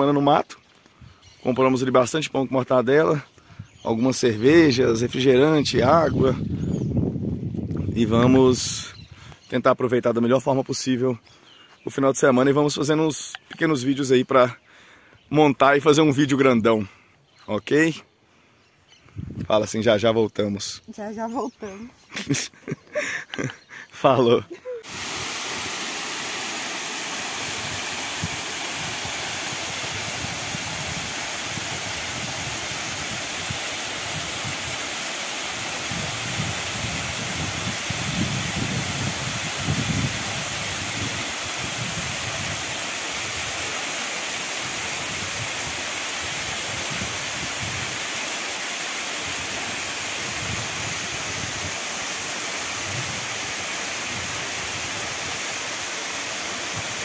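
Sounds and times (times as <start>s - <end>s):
waterfall rushing: 24.8s - 57.0s.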